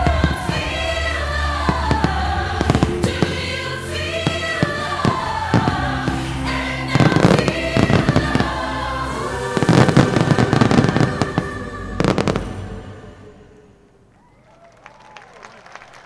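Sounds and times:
fireworks crackling and banging: 0:00.0 - 0:12.7
music: 0:00.0 - 0:14.0.

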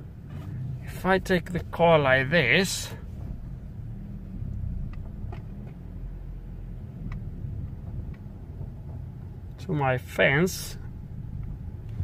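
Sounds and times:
car engine idling: 0:00.0 - 0:12.0
faint clicks: 0:04.5 - 0:05.8.

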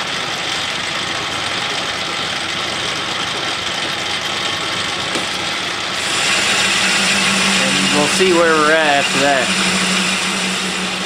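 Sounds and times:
metal lathe whirring: 0:05.3 - 0:11.0.

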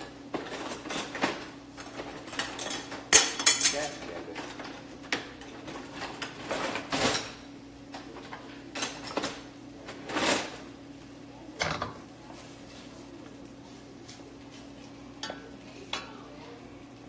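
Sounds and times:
utensils and containers clattering: 0:00.0 - 0:10.7, 0:15.2 - 0:16.3
steady low hum: 0:00.0 - 0:17.0.

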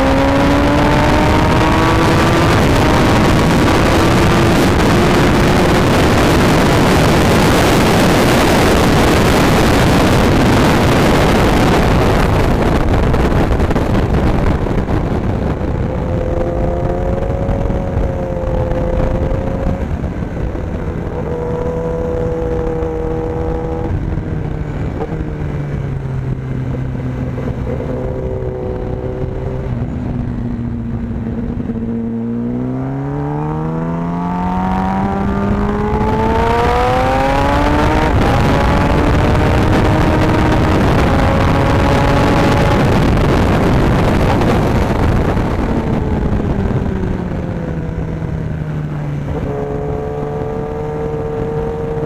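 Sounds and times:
motorcycle engine: 0:00.0 - 0:52.0
wind rush: 0:00.0 - 0:52.0.

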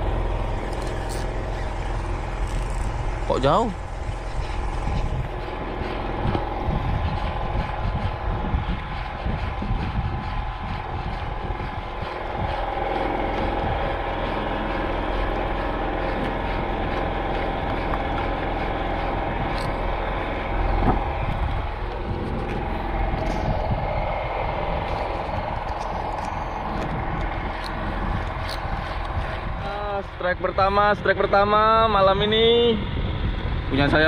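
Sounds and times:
boat engine droning: 0:00.0 - 0:34.0.

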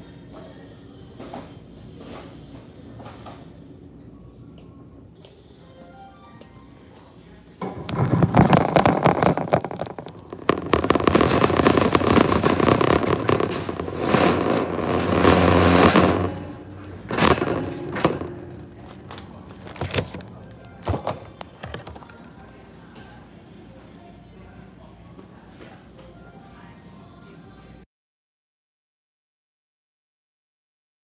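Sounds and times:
plastic bags rustling: 0:07.6 - 0:16.0, 0:16.6 - 0:21.8
cart knocks: 0:07.6 - 0:21.8
shopping cart rattling: 0:07.6 - 0:21.9.

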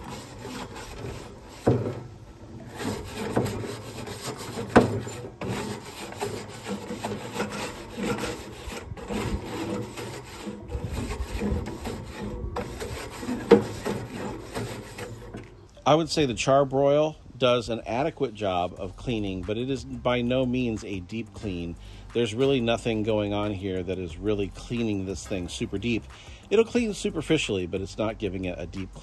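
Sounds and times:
grill brush scrubbing grates: 0:00.0 - 0:15.6.

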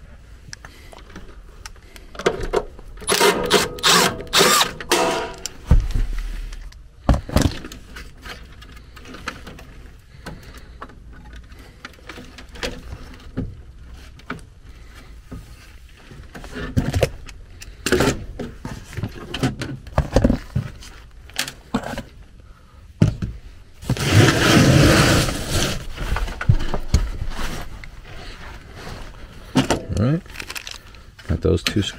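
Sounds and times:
metal panels clicking and scraping: 0:02.2 - 0:05.6
loud scraping rustle: 0:23.8 - 0:29.4.

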